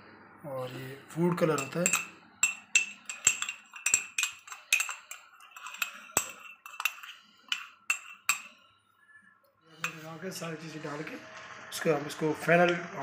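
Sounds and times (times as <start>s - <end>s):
metal spoon clinking on dishware: 1.3s - 8.7s, 9.8s - 10.1s.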